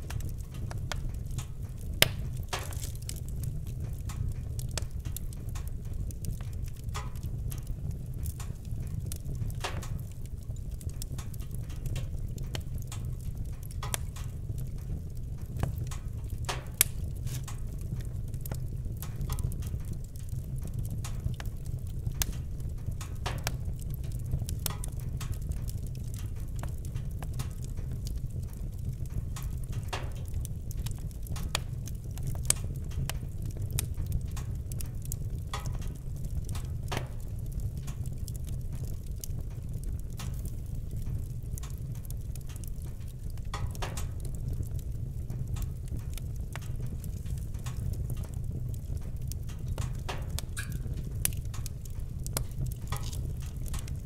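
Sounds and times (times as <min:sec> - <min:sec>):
wood fire crackling: 0:00.0 - 0:54.0.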